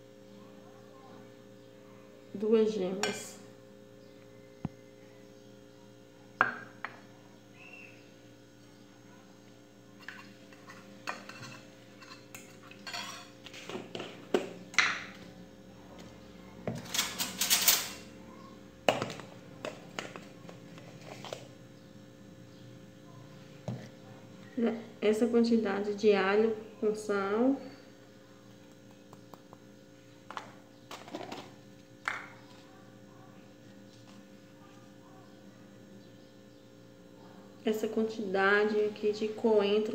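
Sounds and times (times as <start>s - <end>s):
kitchen utensils clinking: 10.0s - 14.2s, 16.8s - 18.1s.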